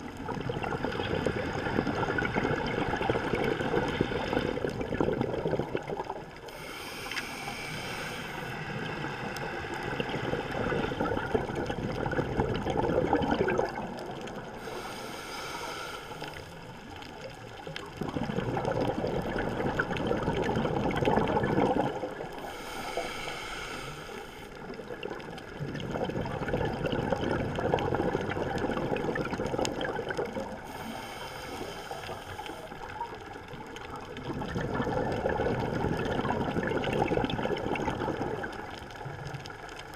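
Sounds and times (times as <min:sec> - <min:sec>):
bubbling exhaust underwater: 0:00.0 - 0:39.9
hissing regulator inhale: 0:06.4 - 0:11.0, 0:14.6 - 0:16.8, 0:22.3 - 0:24.8, 0:30.6 - 0:33.0.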